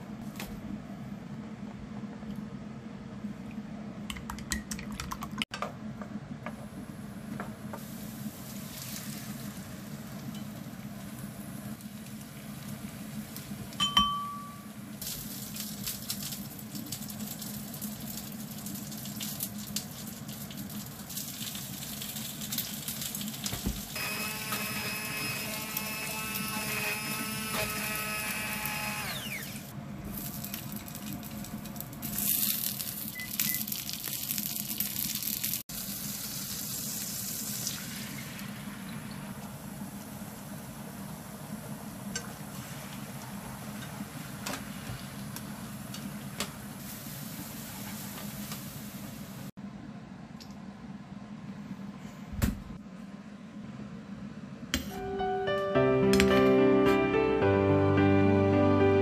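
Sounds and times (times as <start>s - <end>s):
kitchen work sounds: 3.2s - 49.6s, 54.7s - 57.1s
small appliance motor: 24.0s - 29.7s.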